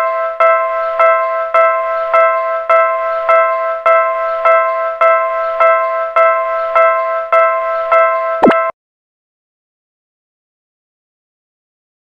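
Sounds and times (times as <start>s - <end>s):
railroad crossing bell clanging: 0.0s - 8.7s.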